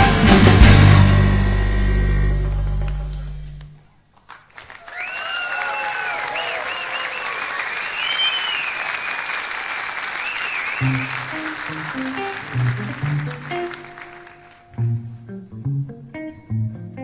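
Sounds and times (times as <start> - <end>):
audience applauding and cheering: 4.2 - 14.8
people whistling: 4.9 - 14.0
guitar notes: 10.8 - 17.0.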